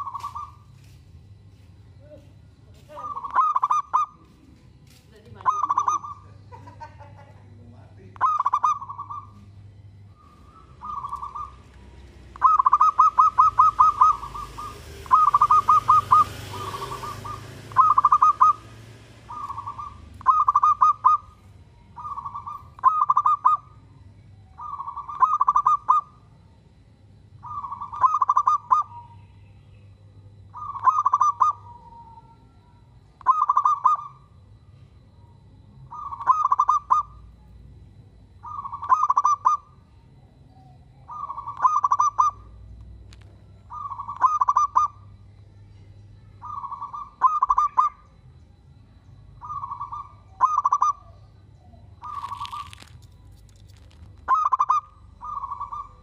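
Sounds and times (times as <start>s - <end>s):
dove cooing: 0.0s - 0.7s, 2.7s - 4.4s, 5.3s - 7.3s, 8.1s - 26.3s, 27.4s - 29.3s, 30.5s - 34.4s, 35.8s - 37.4s, 38.4s - 39.8s, 40.6s - 42.7s, 43.6s - 45.2s, 46.4s - 48.1s, 49.4s - 56.0s.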